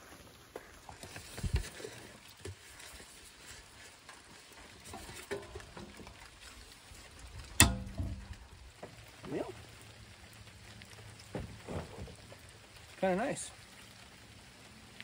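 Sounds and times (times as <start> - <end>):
light rain patter: 0.0 - 15.0
dull thump: 7.6 - 8.4.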